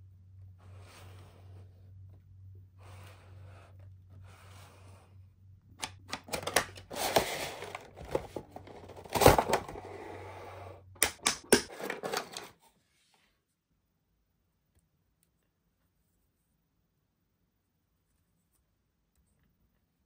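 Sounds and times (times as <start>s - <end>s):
packaging clicking and crinkling: 5.8s - 9.8s, 11.1s - 12.6s
sharp plastic snap: 11.0s - 11.7s.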